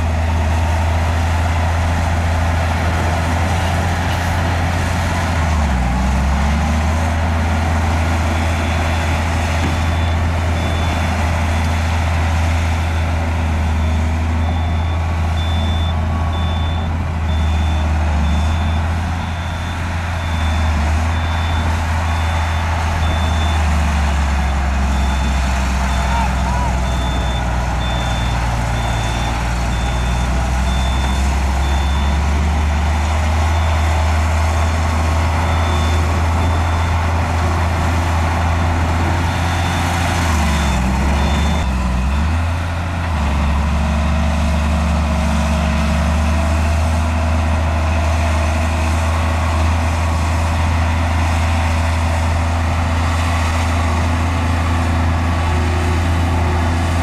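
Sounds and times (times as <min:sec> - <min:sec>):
heavy diesel engine running: 0:00.0 - 0:57.0
reversing alarm beeping: 0:08.2 - 0:11.9, 0:12.8 - 0:32.5, 0:33.4 - 0:34.6, 0:35.2 - 0:37.1, 0:39.1 - 0:42.5.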